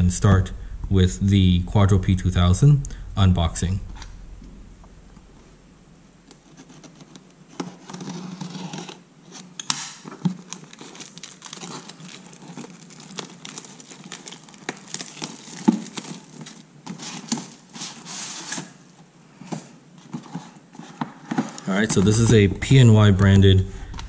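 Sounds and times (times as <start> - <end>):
shrink wrap crinkling: 10.0 - 18.8.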